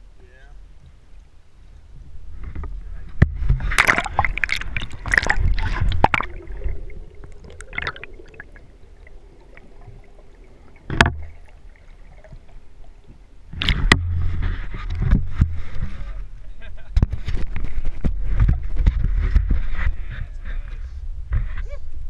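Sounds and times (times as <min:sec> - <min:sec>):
faint underwater hum: 0:00.0 - 0:22.0
water splashing and gurgling: 0:03.2 - 0:15.9.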